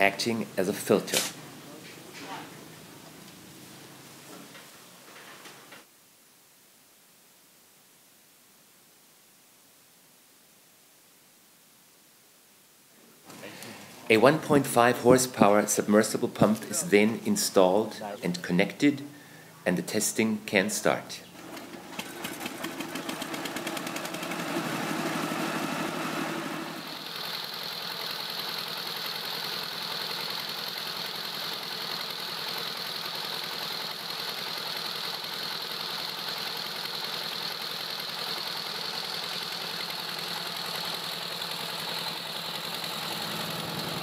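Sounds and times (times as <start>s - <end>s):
stationary engine running: 21.4s - 44.0s.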